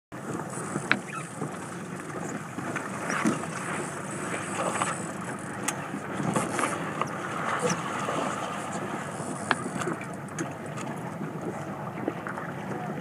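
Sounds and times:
boat motor running slowly: 0:00.1 - 0:13.0
water noise: 0:00.1 - 0:13.0.

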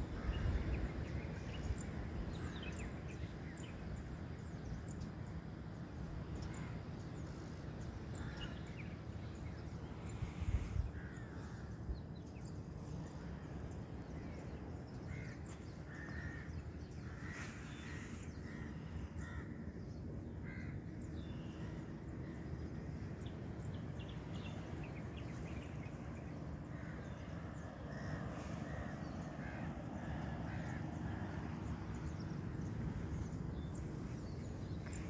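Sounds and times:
crows cawing: 0:15.1 - 0:19.7, 0:20.4 - 0:21.8, 0:26.7 - 0:31.8.

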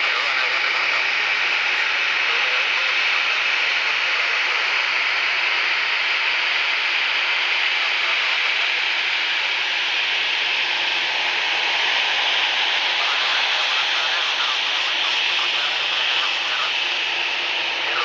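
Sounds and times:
jet engines idling whine: 0:00.0 - 0:18.0.

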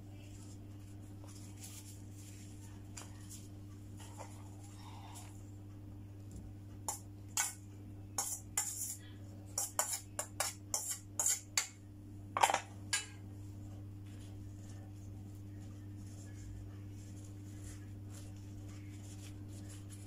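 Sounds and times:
steady low hum: 0:00.0 - 0:20.0
spoon scraping metal colander: 0:08.2 - 0:09.0, 0:09.6 - 0:11.6.

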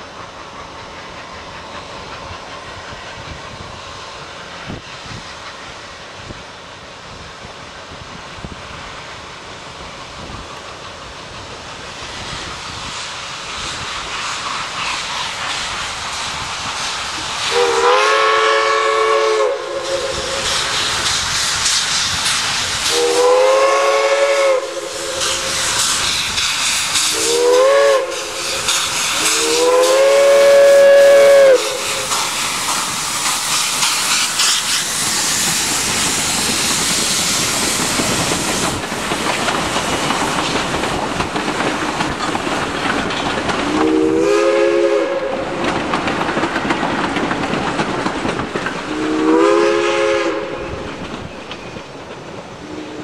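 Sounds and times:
steam locomotive exhaust hissing: 0:00.0 - 0:53.0
steam locomotive chime whistle: 0:17.4 - 0:20.9, 0:22.8 - 0:25.8, 0:26.7 - 0:32.2, 0:43.7 - 0:45.5, 0:48.9 - 0:51.9.

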